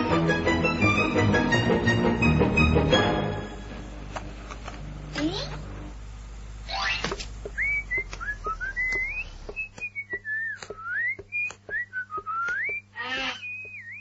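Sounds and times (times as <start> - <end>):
cartoon whistling tune: 7.6 - 14.0
short wavering pitched cry: 12.9 - 14.0.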